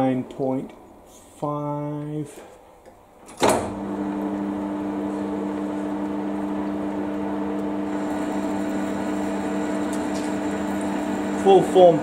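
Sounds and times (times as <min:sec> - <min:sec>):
metal lathe humming: 0:03.7 - 0:12.0.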